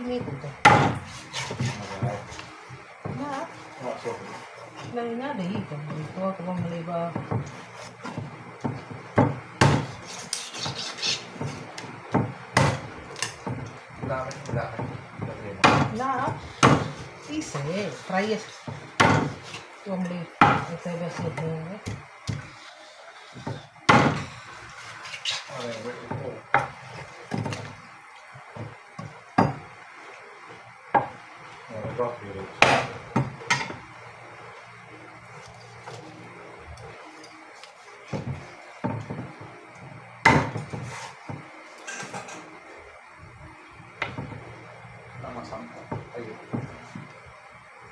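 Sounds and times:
cleaver chopping on wooden board: 0.6s - 2.2s, 8.1s - 15.0s, 15.6s - 16.0s, 16.6s - 17.0s, 18.7s - 19.6s, 20.4s - 22.4s, 23.4s - 24.3s, 32.6s - 33.8s, 40.2s - 41.4s.

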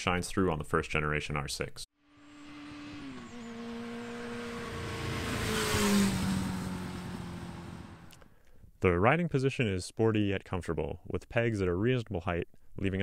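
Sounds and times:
motorcycle riding past: 2.0s - 8.2s.

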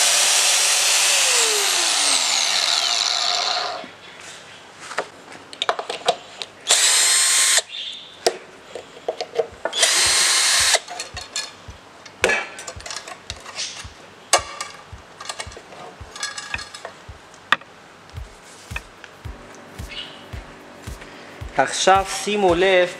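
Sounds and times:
cordless drill running: 0.0s - 3.8s, 6.7s - 7.6s, 9.7s - 10.8s
tools clicking and knocking on bench: 14.4s - 16.9s.

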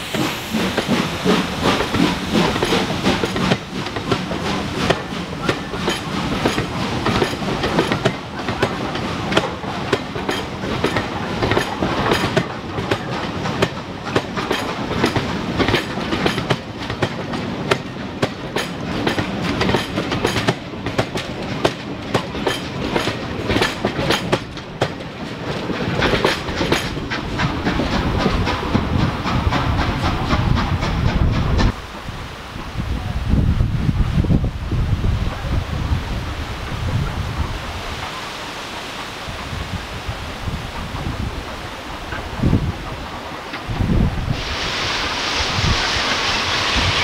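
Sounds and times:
train wheels clattering: 0.0s - 31.8s, 40.5s - 44.4s
train rumble: 0.0s - 47.0s.

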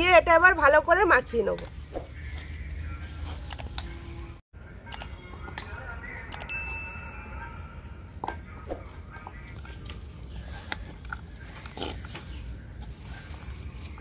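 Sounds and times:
hands squelching potato mixture: 9.4s - 14.0s.

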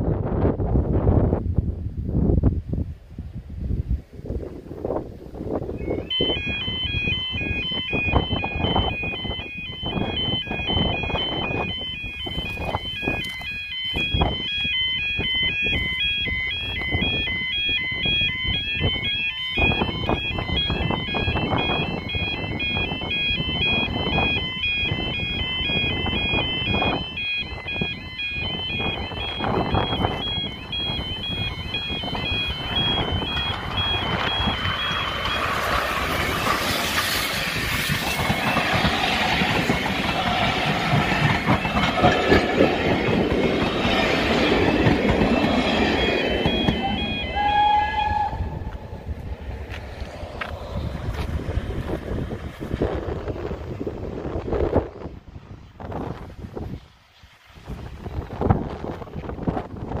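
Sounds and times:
low rumbling noise: 0.0s - 56.6s
level crossing alarm: 5.6s - 49.2s.

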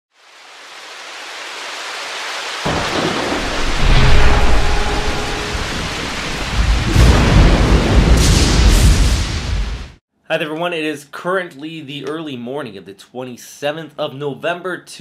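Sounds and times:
rain hiss: 0.1s - 10.0s
thunder rumbling: 2.7s - 10.0s.

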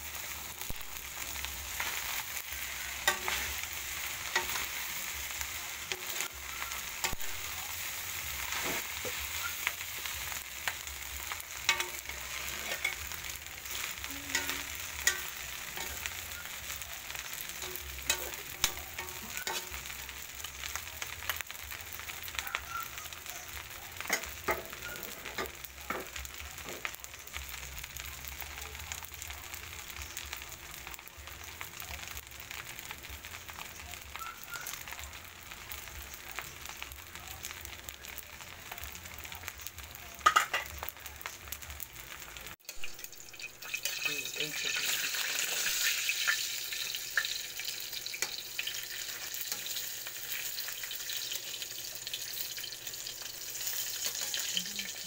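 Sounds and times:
rice sizzling in a wok: 0.0s - 55.0s
spatula scraping a pan: 8.4s - 10.8s, 11.4s - 16.5s.

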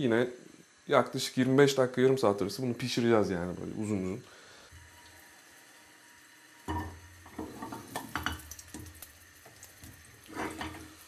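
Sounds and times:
onions knocking into frying pan: 6.7s - 9.0s.

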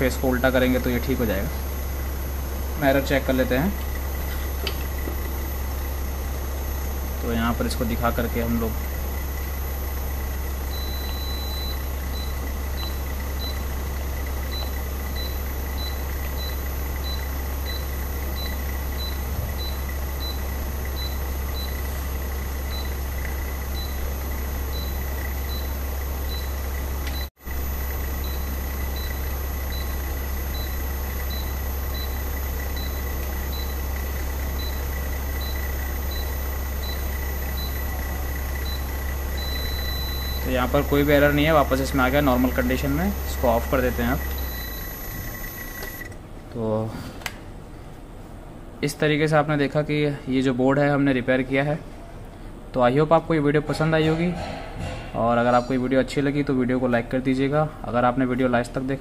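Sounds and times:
compressor and fan motor humming: 0.0s - 59.0s.

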